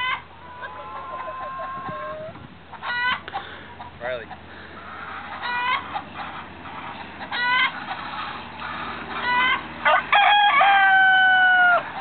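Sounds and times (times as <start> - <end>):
rooster crowing: 0.0 - 3.0, 8.7 - 12.0
chickens clucking: 0.0 - 12.0
chickens squawking: 0.0 - 12.0.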